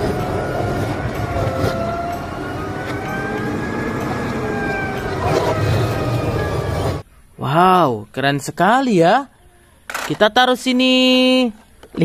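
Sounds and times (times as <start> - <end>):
garbage truck engine rumble: 0.0 - 7.0
hydraulics whining: 0.0 - 7.0.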